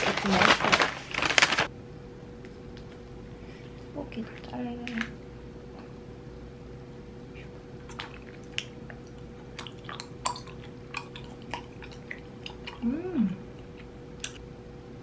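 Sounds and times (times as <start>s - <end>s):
wet chewing clicks and smacks: 7.8s - 12.8s, 13.6s - 14.4s
person humming: 12.8s - 13.5s.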